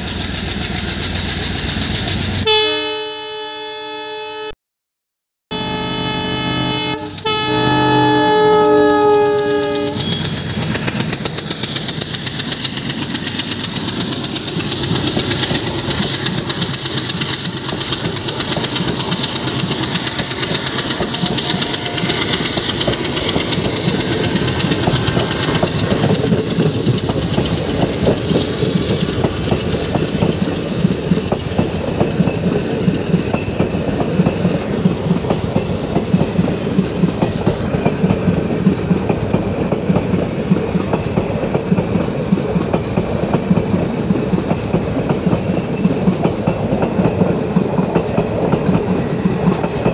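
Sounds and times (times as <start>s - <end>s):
train wheels clattering over rail joints: 0.0s - 2.5s, 9.3s - 49.9s
locomotive horn: 2.4s - 4.6s, 5.5s - 10.1s.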